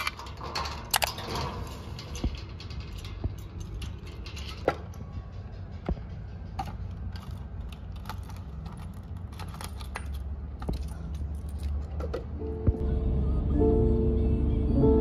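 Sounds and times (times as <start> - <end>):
low rumble: 0.0 - 15.0
small hard objects clinking: 6.6 - 12.0
soft music: 12.4 - 15.0.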